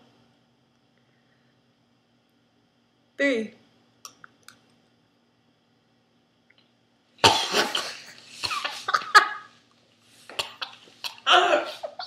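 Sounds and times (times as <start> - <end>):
girl coughing: 7.2 - 9.5.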